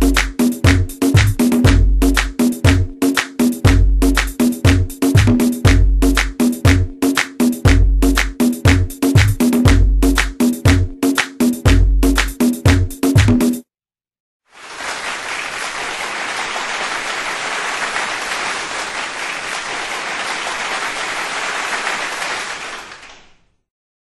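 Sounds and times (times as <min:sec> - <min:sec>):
crowd clapping: 0:14.5 - 0:23.5.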